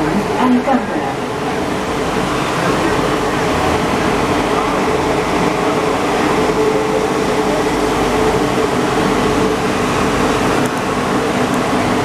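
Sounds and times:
train rolling rush: 0.0 - 12.0.

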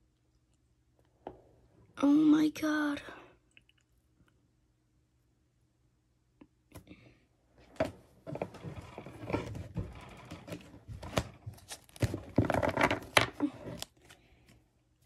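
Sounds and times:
cards and wrappers rustling: 8.3 - 14.7.

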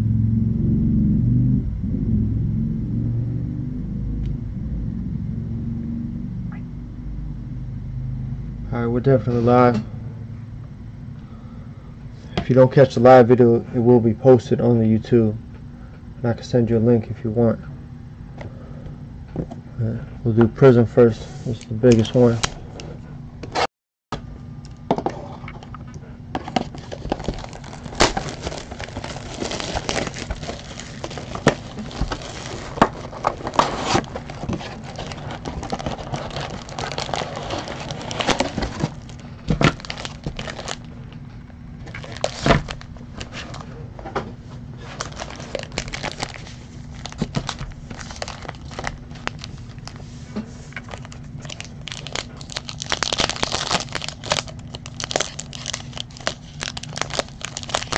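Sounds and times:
plastic and foil crinkling and tearing: 26.4 - 40.9, 41.8 - 43.7, 44.8 - 50.0, 50.7 - 57.9.

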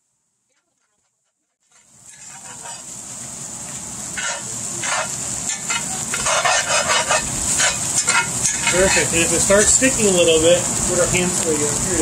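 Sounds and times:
rice sizzling in a frying pan: 0.0 - 12.0
spatula scraping a pan: 0.6 - 3.0, 4.1 - 9.8.

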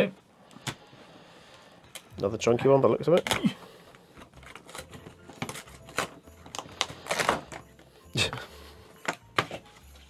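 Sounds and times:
cardboard packaging clicks and rustles: 3.1 - 7.8.

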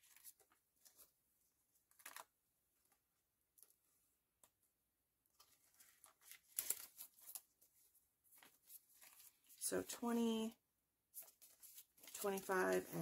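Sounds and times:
plastic pouches and banknotes rustling: 0.0 - 1.1, 5.3 - 9.7, 11.1 - 13.0.

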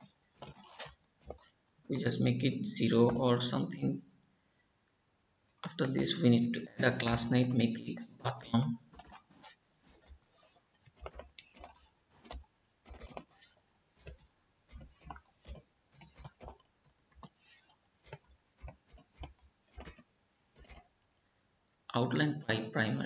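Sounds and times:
computer keyboard typing: 9.0 - 20.0.

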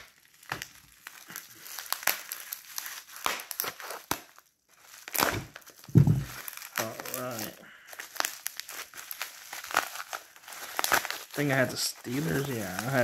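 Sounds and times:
bubble wrap crinkling: 0.0 - 13.0
dull knock: 5.9 - 6.3.

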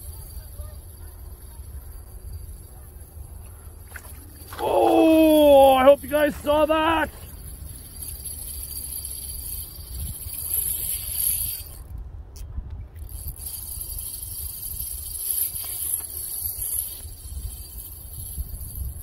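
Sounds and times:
spinning reel cranking: 0.0 - 3.2, 4.1 - 11.9, 13.0 - 19.0
wind rumbling on microphone: 7.2 - 19.0.

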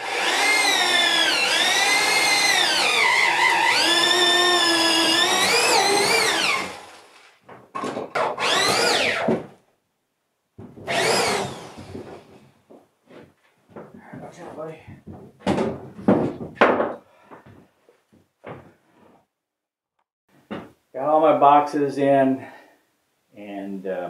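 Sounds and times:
drill boring through wood: 0.0 - 7.2, 8.2 - 9.4, 10.9 - 12.3.

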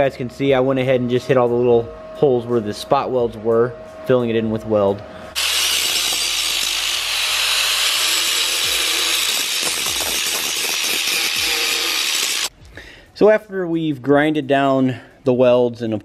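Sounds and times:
angle grinder grinding metal: 4.2 - 12.5.

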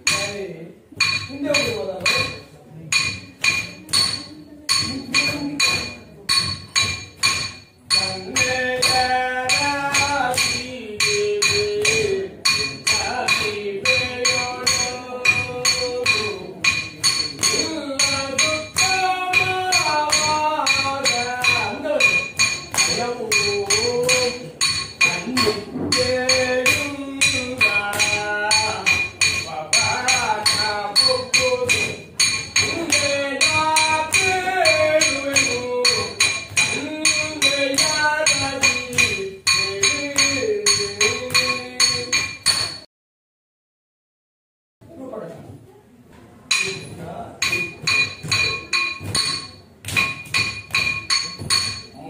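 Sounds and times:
hand cymbals struck in a beat: 0.0 - 42.9, 46.5 - 52.0
person singing: 7.9 - 42.3.

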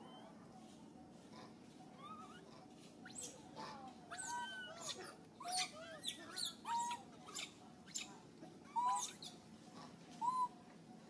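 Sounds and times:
baby monkeys squealing and cooing: 2.0 - 9.4, 10.2 - 10.5.

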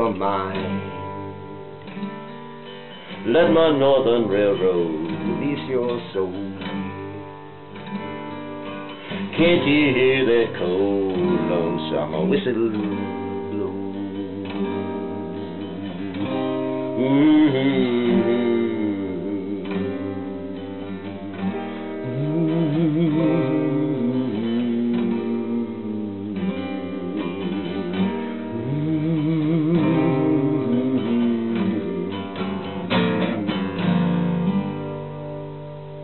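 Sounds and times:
acoustic guitar strumming: 0.0 - 36.0
wavering held melody line: 13.6 - 34.6.

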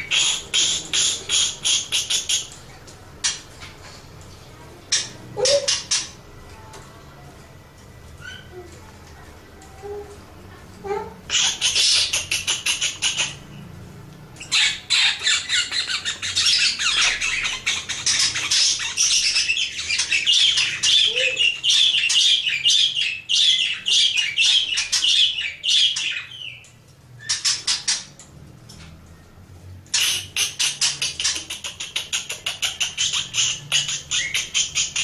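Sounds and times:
budgerigar chattering: 0.0 - 2.5, 11.3 - 13.4, 14.4 - 26.6.

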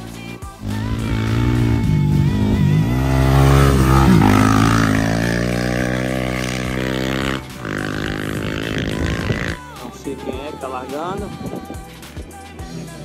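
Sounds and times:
motorcycle engine at high revs: 0.6 - 9.6.

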